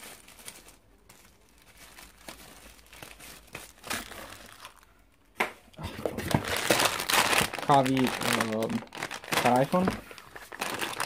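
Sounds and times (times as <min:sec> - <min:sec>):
packaging crinkling and rustling: 0:00.0 - 0:05.0, 0:05.8 - 0:11.0.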